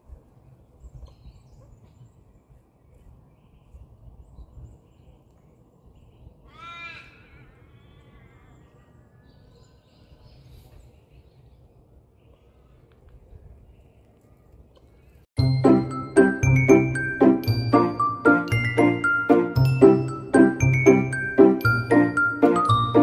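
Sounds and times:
bird cawing: 6.5 - 9.0.

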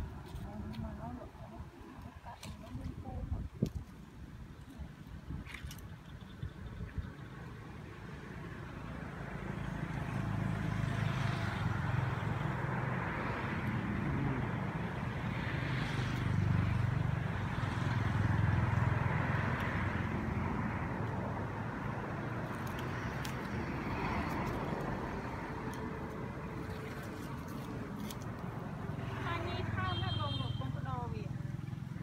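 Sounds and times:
vehicle engine rumbling: 4.8 - 32.0.

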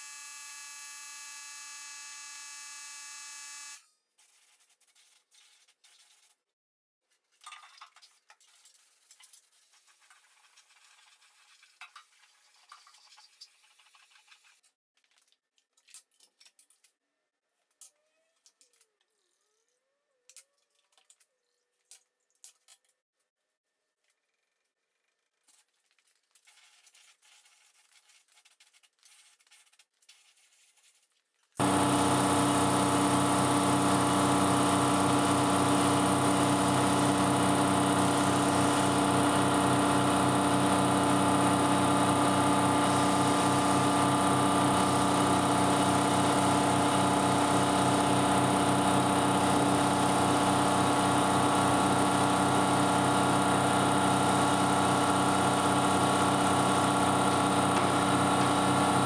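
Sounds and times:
mechanical motor drone: 0.0 - 3.8, 31.6 - 59.0.

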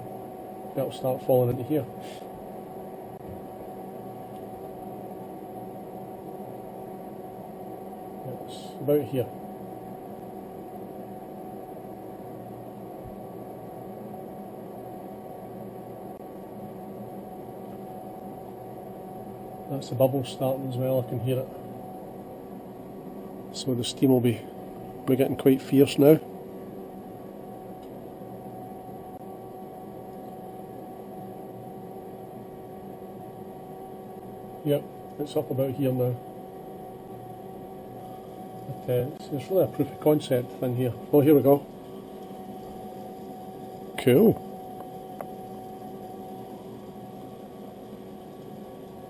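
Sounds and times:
gas stove burning: 0.0 - 49.0
small water pump humming: 0.0 - 49.0
gas stove hissing: 28.3 - 49.0
kettle bubbling at the boil: 40.5 - 49.0.

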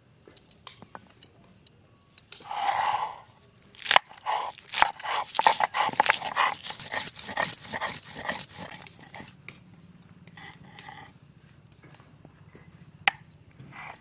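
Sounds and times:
chilies crushed on grinding stone: 3.7 - 9.4.

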